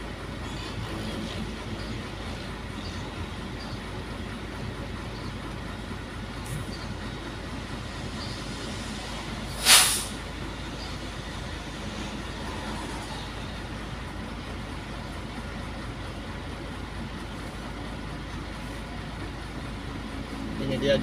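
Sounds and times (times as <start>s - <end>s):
truck engine idling: 0.0s - 21.0s
air brake hiss: 8.4s - 10.3s.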